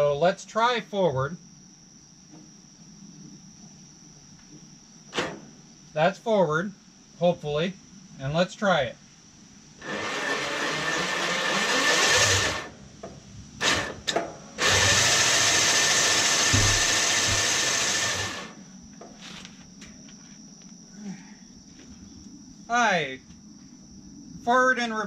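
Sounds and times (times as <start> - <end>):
electric winch motor running: 9.8 - 12.8, 13.6 - 18.6.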